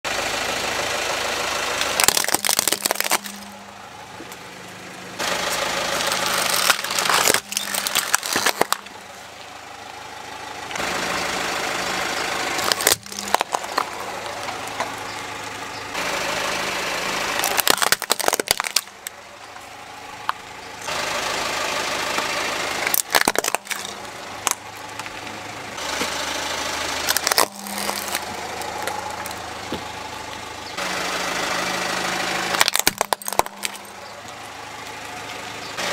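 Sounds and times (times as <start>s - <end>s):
car engine idling: 0.1s - 35.9s
plastic toys cracking under tyre: 1.8s - 3.6s, 6.0s - 9.0s, 12.6s - 15.0s, 17.3s - 19.2s, 22.8s - 25.2s, 27.0s - 29.4s, 32.5s - 34.0s.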